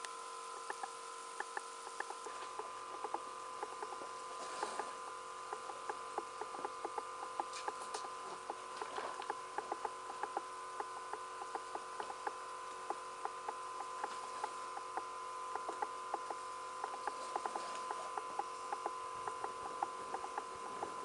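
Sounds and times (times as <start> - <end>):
broth simmering with pops: 0.0 - 21.0
steady hum: 0.0 - 21.0.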